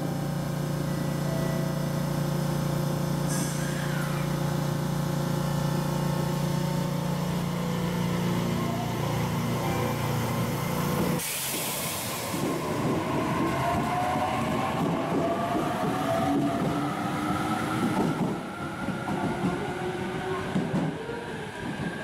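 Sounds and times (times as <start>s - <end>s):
low hum of train equipment: 0.0s - 22.0s
hiss of air: 11.2s - 12.5s.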